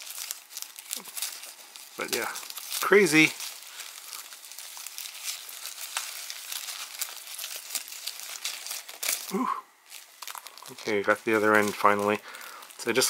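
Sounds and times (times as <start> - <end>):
plastic film crinkling: 0.0 - 13.0.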